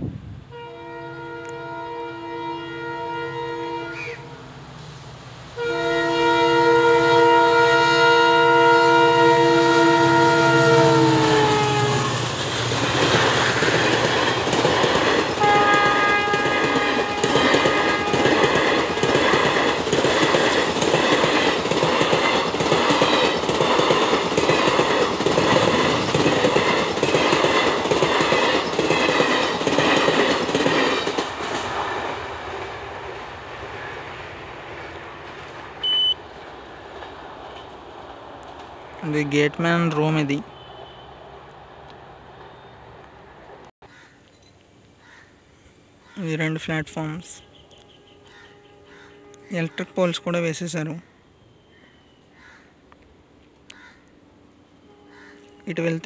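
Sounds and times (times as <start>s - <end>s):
locomotive horn: 0.5s - 4.4s, 5.6s - 12.3s, 15.4s - 18.5s, 40.3s - 41.2s, 47.8s - 50.5s
train wheels clickety-clack: 12.2s - 32.7s, 38.4s - 38.9s.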